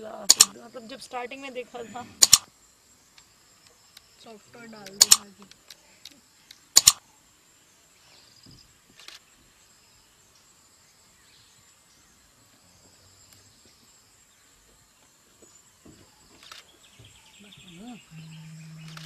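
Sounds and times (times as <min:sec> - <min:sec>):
soft clicks: 0:00.3 - 0:00.5, 0:04.8 - 0:07.0
high insect note: 0:17.4 - 0:19.0.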